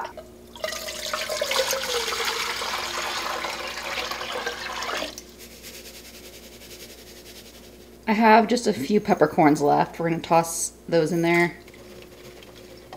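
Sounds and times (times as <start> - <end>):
liquid pouring into a pot: 0.1 - 5.3.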